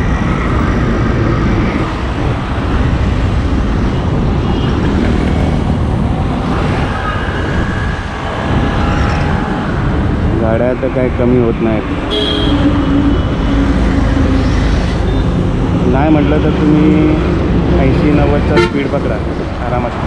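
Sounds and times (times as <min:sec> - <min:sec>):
cars passing: 0:00.0 - 0:20.0
low traffic rumble: 0:00.0 - 0:20.0.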